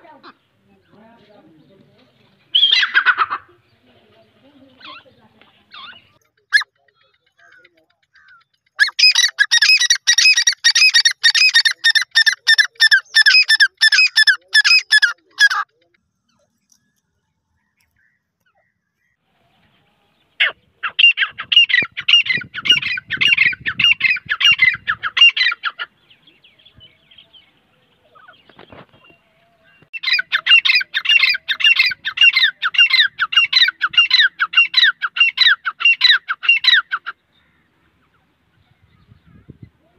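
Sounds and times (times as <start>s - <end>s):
bird calling repeated high notes: 6.1s - 15.8s, 29.9s - 37.1s.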